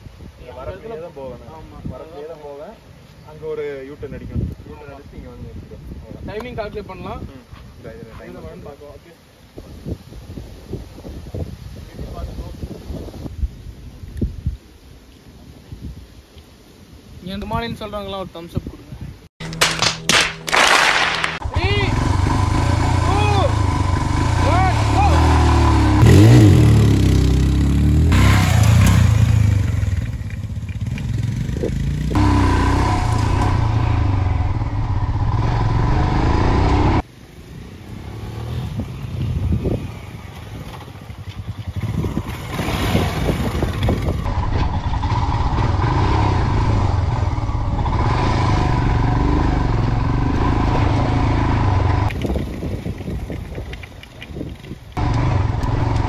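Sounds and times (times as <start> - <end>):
motorcycle engine revving: 21.1 - 37.0, 38.0 - 52.2, 55.0 - 56.0.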